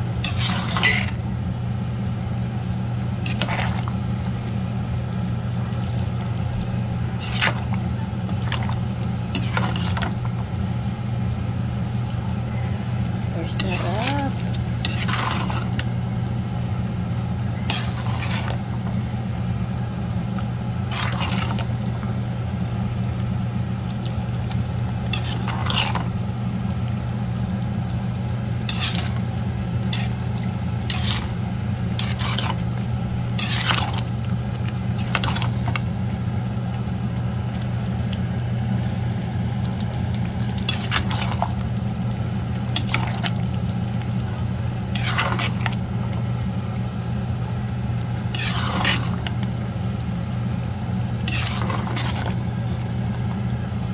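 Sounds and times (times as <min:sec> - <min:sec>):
steady low hum: 0:00.0 - 0:53.9.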